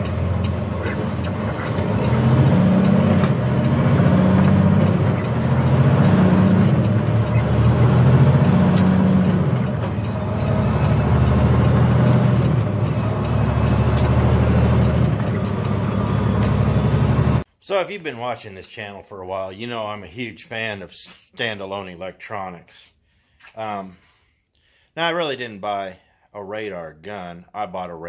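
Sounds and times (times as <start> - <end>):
truck diesel engine: 0.0 - 17.5.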